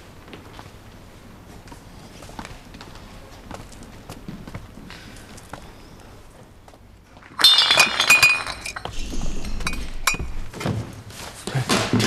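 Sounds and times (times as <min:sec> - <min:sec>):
glass shards clinking: 0:07.2 - 0:09.0
glass shattering: 0:07.3 - 0:09.0.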